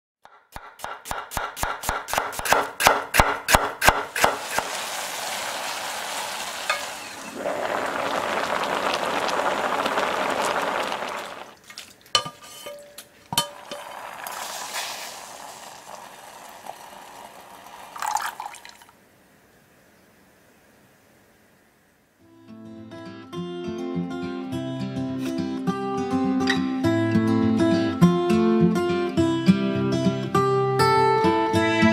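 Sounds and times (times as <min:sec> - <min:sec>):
knife chopping on wooden board: 0:00.3 - 0:04.7
sizzling: 0:00.6 - 0:18.9
running water: 0:04.1 - 0:19.0.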